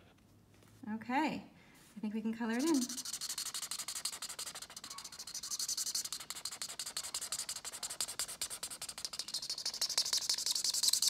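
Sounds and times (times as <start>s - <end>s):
marker scratching on paper: 2.4s - 11.0s.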